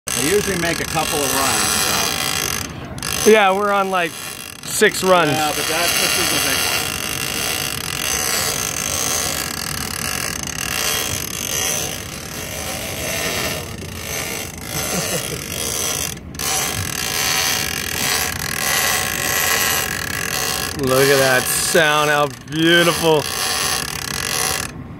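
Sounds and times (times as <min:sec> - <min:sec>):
fishing reel whirring: 0:00.1 - 0:24.9.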